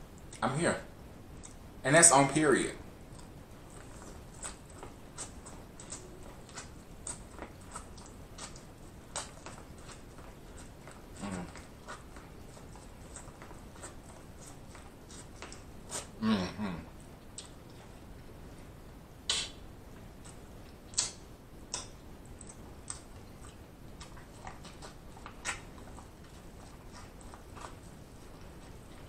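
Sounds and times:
chewing corn crunches: 3.1s - 16.2s, 20.2s - 29.0s.

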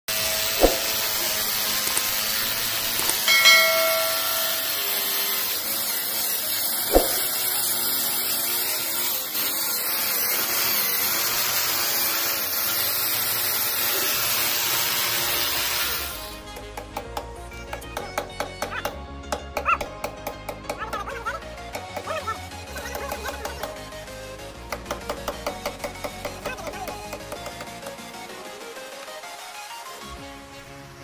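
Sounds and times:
electric drill whirring: 0.1s - 3.3s, 5.5s - 16.5s.

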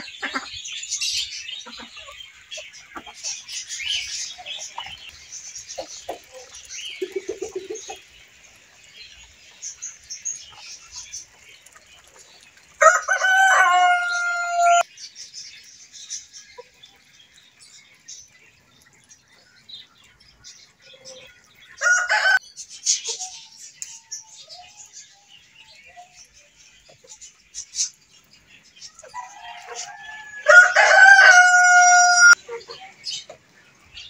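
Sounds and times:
small birds chirping: 0.0s - 34.0s
rooster crowing: 12.8s - 14.8s, 21.8s - 22.4s, 29.1s - 32.4s.

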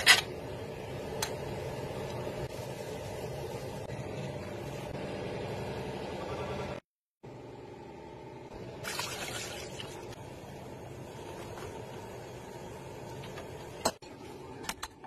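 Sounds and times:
water pouring into saucepan: 8.8s - 10.2s.

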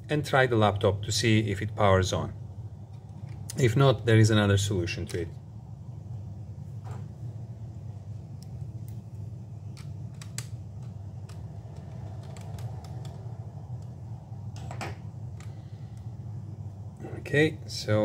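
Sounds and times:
steady low hum: 0.0s - 18.0s
plastic laptop parts clicking: 9.7s - 13.9s.

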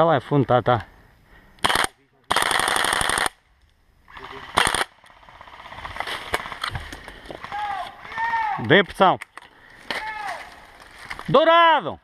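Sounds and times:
airsoft rifle bursts: 1.6s - 3.4s, 4.4s - 5.0s.

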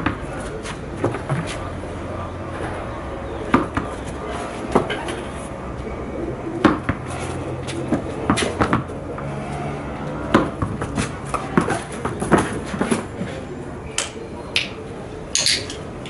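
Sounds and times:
tennis ball bouncing on tiles: 3.5s - 4.0s, 6.6s - 7.2s, 7.9s - 8.9s, 10.3s - 13.0s.

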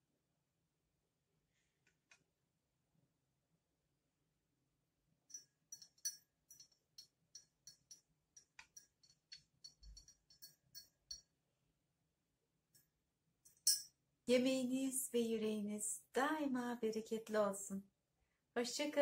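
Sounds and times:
teaspoon clinking in glass: 5.3s - 11.3s, 13.5s - 13.9s.

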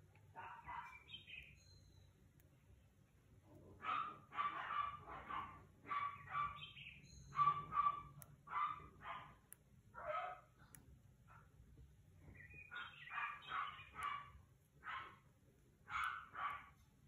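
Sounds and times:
dog barking: 0.3s - 1.1s, 3.8s - 10.7s, 12.7s - 16.8s.

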